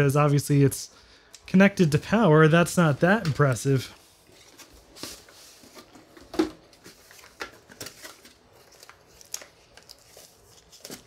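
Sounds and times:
cardboard rustling and scraping: 4.0s - 9.1s.

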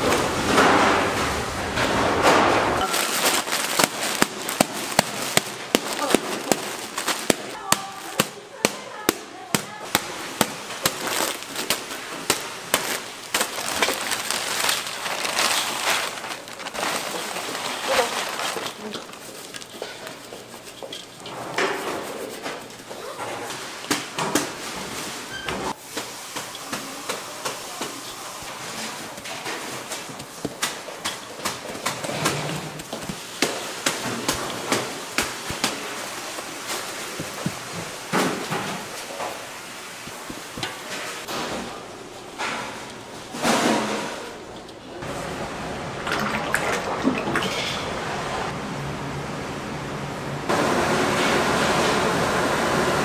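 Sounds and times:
wooden stick pounding plastic bags: 0.0s - 22.8s, 25.8s - 39.4s
gloved hands crackling and rustling: 2.8s - 23.1s.

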